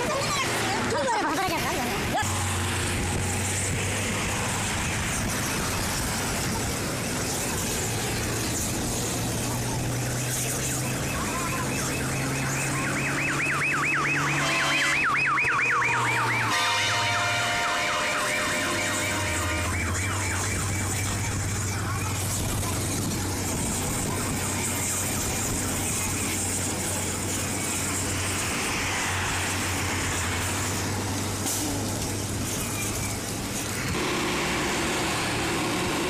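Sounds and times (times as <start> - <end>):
electronic siren warbling: 10.5 - 16.6, 18.0 - 22.2.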